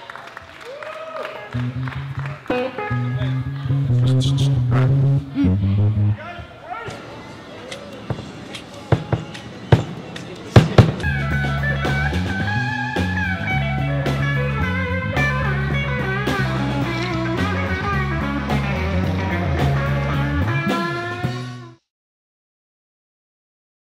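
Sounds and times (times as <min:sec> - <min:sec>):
rock music with guitars and drums: 0:01.6 - 0:06.1, 0:10.8 - 0:21.8.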